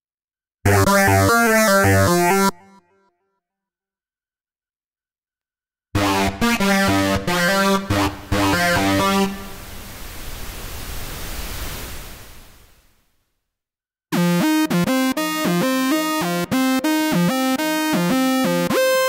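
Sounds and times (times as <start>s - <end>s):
bright synthesizer lead notes: 6.0s - 9.6s, 14.1s - 19.0s.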